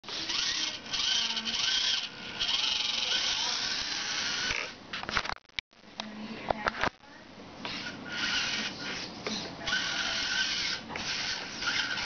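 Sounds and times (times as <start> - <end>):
small electric motor whining: 0.1 - 4.8, 7.7 - 12.0.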